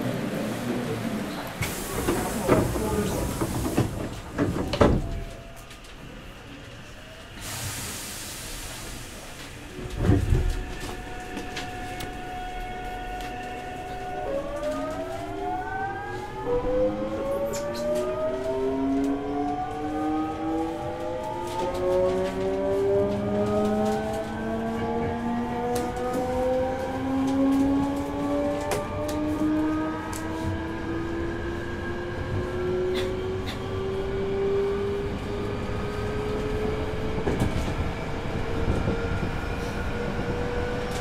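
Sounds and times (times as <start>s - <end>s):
air hiss: 7.4s - 9.4s
train inverter whining: 8.9s - 41.0s.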